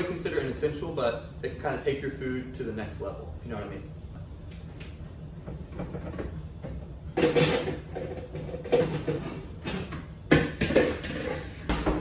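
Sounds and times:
pots and pans clattering: 7.2 - 12.0.

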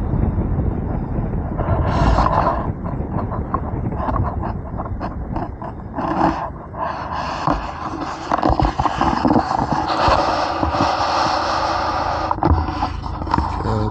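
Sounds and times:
steady rushing noise: 0.0 - 13.9
camera rubbing and knocking on car: 1.3 - 13.9.

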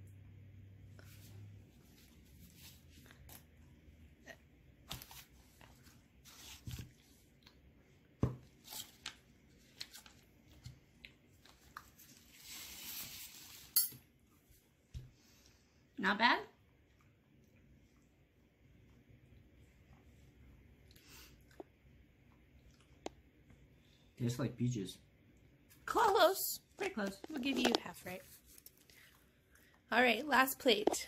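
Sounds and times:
man chewing with lip smacks: 18.8 - 23.6.

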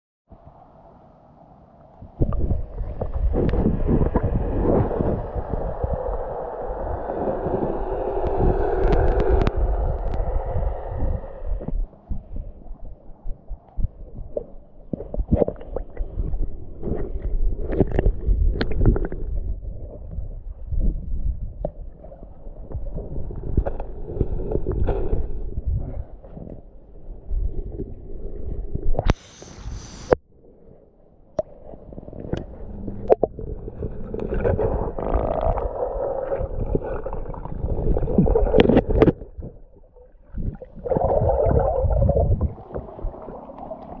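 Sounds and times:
muffled underwater rumble: 0.3 - 44.0
brief hiss: 29.1 - 30.2
soft water splashes: 31.3 - 44.0.

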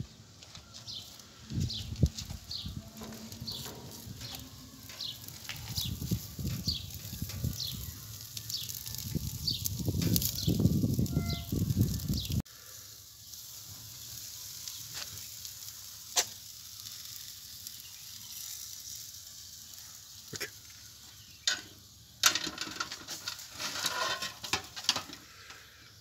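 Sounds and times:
meat sizzling on skewers: 0.4 - 26.0
metal skewers scraping a tray: 2.2 - 12.3, 21.4 - 25.4.

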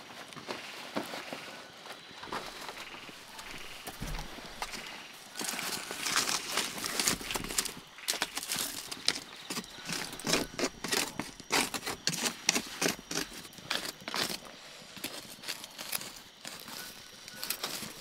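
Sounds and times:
wooden knocks and scrapes: 2.2 - 5.7.

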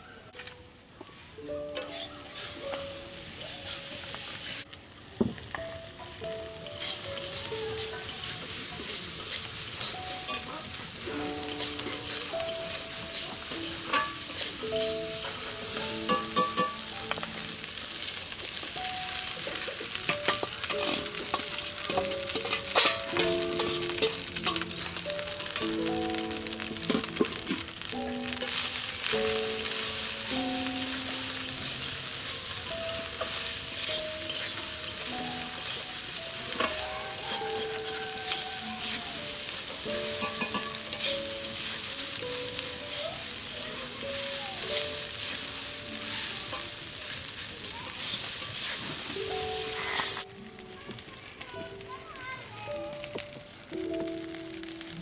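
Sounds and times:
light instrumental melody: 0.0 - 4.6, 5.2 - 47.5, 48.8 - 55.0
food sizzling in oil: 0.0 - 55.0
metal spatula scraping pan: 1.8 - 2.6, 6.7 - 7.4, 11.5 - 14.6, 19.8 - 24.9, 33.2 - 34.6, 36.6 - 41.9.

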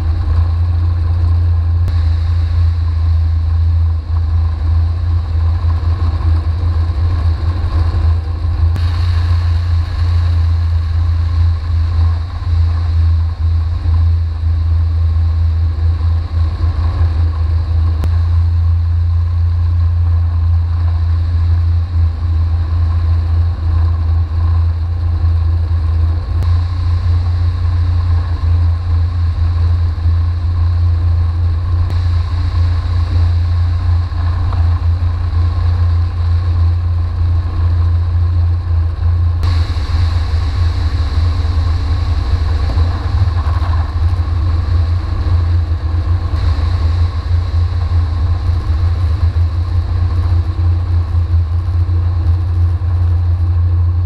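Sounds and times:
engine and propeller drone: 0.0 - 54.0
wind rumble on microphone: 0.0 - 54.0
bright hiss: 8.8 - 13.1, 31.9 - 36.7, 39.4 - 51.3.

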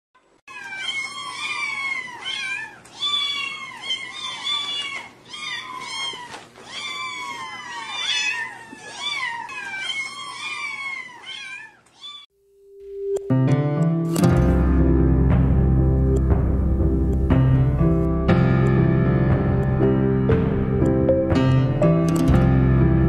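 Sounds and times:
kittens meowing: 0.5 - 12.3.

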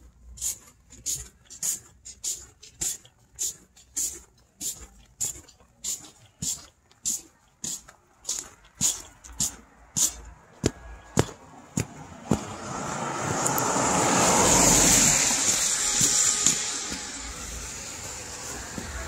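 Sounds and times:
footsteps on snow: 3.4 - 19.0
car passing: 8.6 - 19.0.

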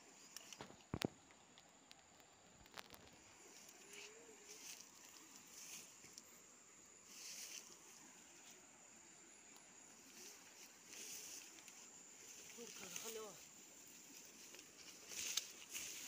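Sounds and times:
soft rustles: 2.5 - 8.7, 9.9 - 16.0
high-pitched insect drone: 3.2 - 16.0.

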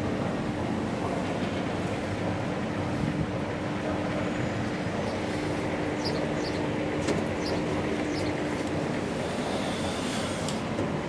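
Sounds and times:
noisy background: 0.2 - 10.0
elevator machinery humming: 0.2 - 11.0.

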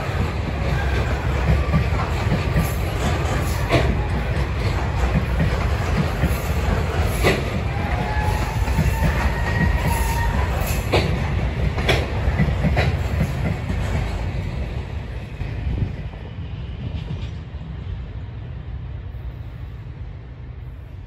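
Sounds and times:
train wheels clacking over rail joints: 0.0 - 14.9
freight train rumble: 0.0 - 21.0.

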